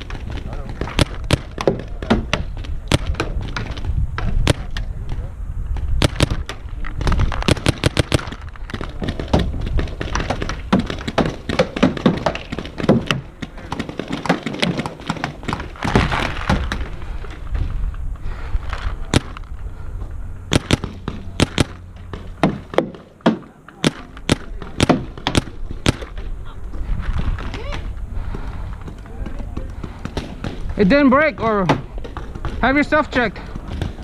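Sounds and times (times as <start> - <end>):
paintball markers firing: 0.0 - 16.9, 20.5 - 26.3
paintballs cracking against bunkers: 0.0 - 18.0, 18.7 - 19.7, 20.5 - 34.0.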